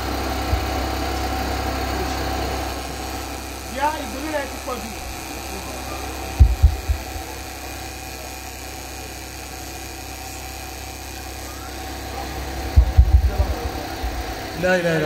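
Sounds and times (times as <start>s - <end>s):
steady low hum: 0.0s - 15.0s
dull low thumps: 6.4s - 7.3s, 12.7s - 14.4s.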